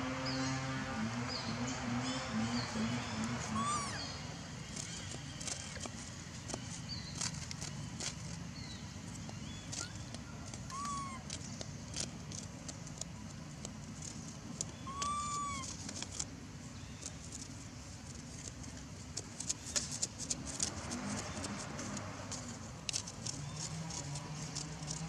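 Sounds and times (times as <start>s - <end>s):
outdoor ambience: 0.0s - 25.0s
animal calls: 2.6s - 4.2s, 9.7s - 11.4s, 14.8s - 15.8s.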